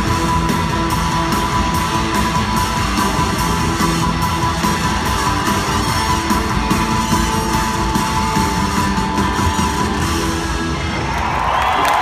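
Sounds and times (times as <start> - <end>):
bass: 0.0 - 12.0
drums: 0.0 - 12.0
electric guitars: 0.0 - 12.0.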